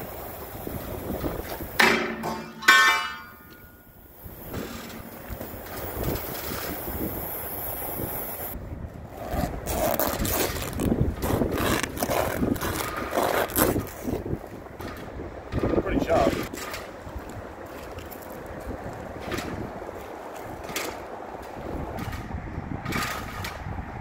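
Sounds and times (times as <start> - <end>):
rag scraping and tearing on steel: 9.1 - 14.3.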